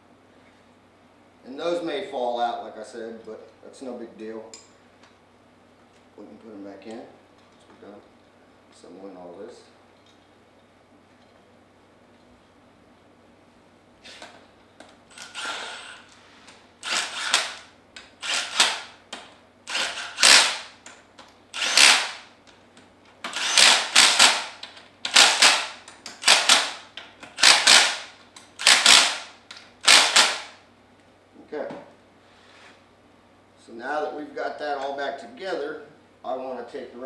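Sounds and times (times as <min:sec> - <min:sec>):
impact driver hammering bursts: 0:16.8 - 0:19.0, 0:19.7 - 0:20.8, 0:21.5 - 0:22.3, 0:23.3 - 0:30.6.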